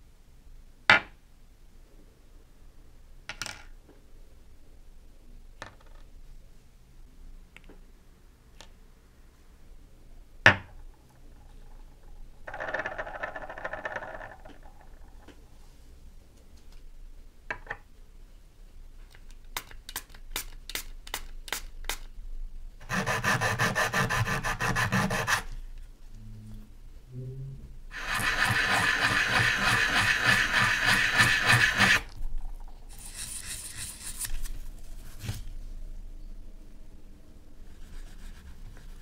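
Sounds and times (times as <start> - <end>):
metal scraping on sandpaper: 22.8 - 25.5, 27.9 - 32.0, 32.9 - 34.5.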